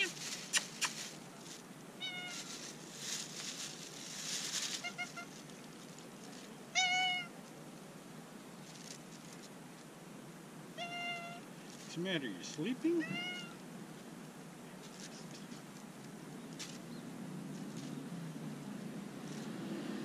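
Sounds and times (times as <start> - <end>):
cat chirping mews: 2.0 - 2.5, 10.8 - 11.4, 13.0 - 13.6
cat meowing: 2.0 - 2.5, 4.8 - 5.4, 6.7 - 7.3, 10.8 - 11.4, 13.0 - 13.6.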